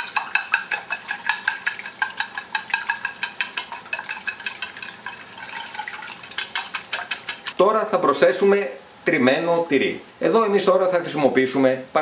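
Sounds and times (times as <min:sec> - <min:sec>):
whisk clinking against bowl: 0:00.0 - 0:07.6.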